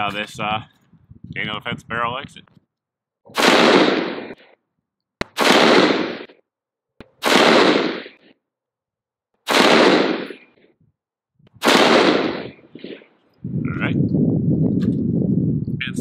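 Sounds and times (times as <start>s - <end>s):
rifle shots: 3.3s - 4.5s, 5.2s - 6.4s, 7.2s - 8.3s, 9.4s - 10.6s, 11.6s - 13.1s.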